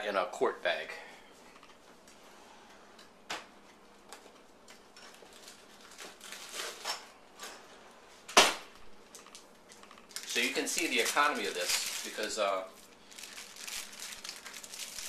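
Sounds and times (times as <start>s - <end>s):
plastic bags rustling: 4.9s - 7.6s, 9.1s - 15.0s.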